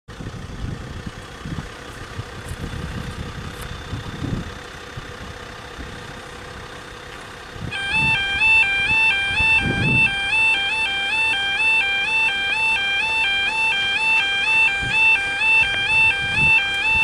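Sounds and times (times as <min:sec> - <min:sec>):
vehicle engine idling: 0:00.1 - 0:17.0
two-tone warning alarm: 0:07.6 - 0:17.0.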